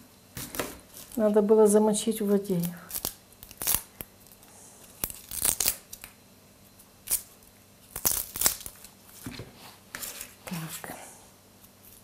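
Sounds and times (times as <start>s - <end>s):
onion skin crackling and tearing: 2.5s - 6.2s, 6.8s - 9.2s.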